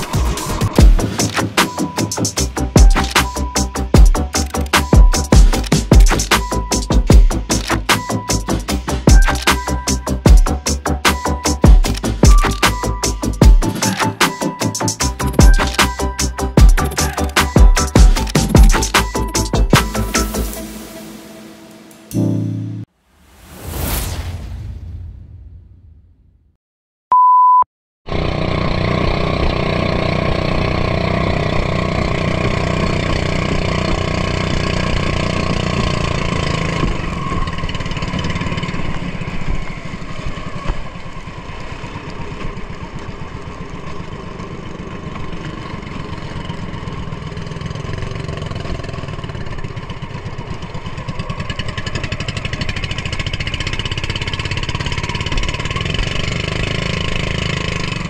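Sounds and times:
high beep: 27.1s - 27.7s
boat engine running: 28.1s - 58.0s.

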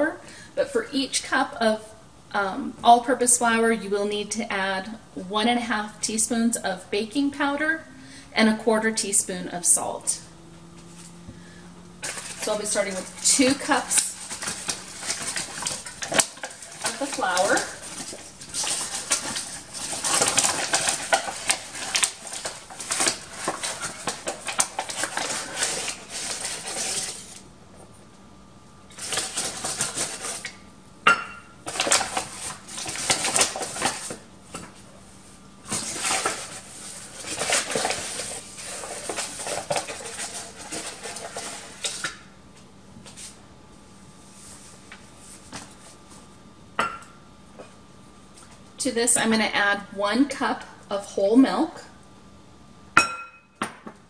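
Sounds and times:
paper bag rustling: 11.9s - 27.4s, 28.9s - 30.6s, 31.6s - 34.2s, 35.7s - 42.1s.

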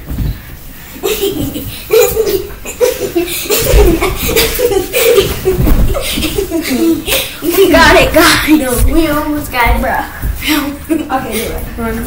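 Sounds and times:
girls laughing: 0.9s - 8.8s, 10.4s - 11.7s
bodies thumping on mattress: 3.5s - 10.6s.

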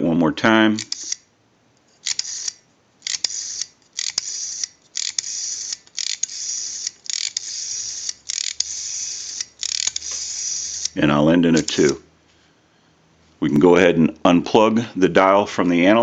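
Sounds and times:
rotary dial whirring back: 0.8s - 1.2s, 1.9s - 12.0s
small dial clicks: 0.8s - 1.2s, 2.0s - 12.0s.

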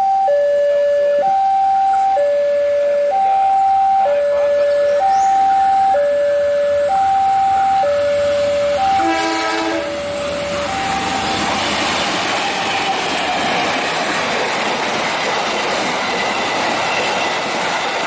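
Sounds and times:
level crossing alarm two tones: 0.0s - 11.6s
train arriving: 0.0s - 18.0s
train horn: 4.1s - 11.6s.

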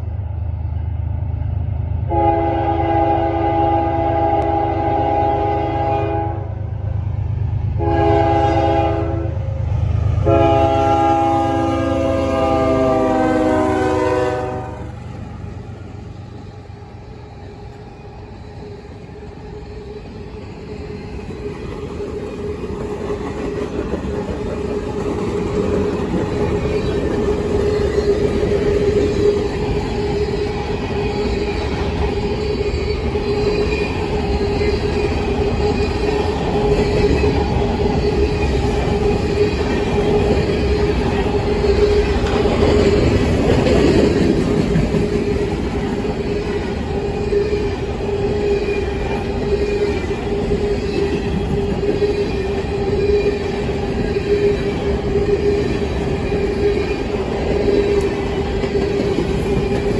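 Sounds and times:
diesel locomotives rumbling by: 0.0s - 59.9s
train wheels on rails: 0.0s - 59.9s
locomotive air horn blasts: 2.1s - 6.6s, 7.8s - 9.4s, 10.2s - 15.0s.

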